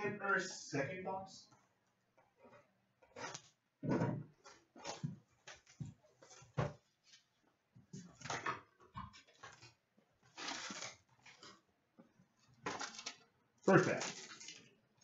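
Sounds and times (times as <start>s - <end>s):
rustle of cardboard and foil packs: 9.3s - 11.6s, 12.6s - 14.7s.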